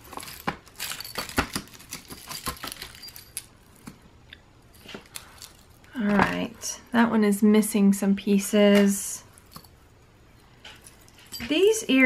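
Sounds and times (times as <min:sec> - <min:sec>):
jewelry clinking: 0:00.0 - 0:03.9, 0:09.2 - 0:12.0.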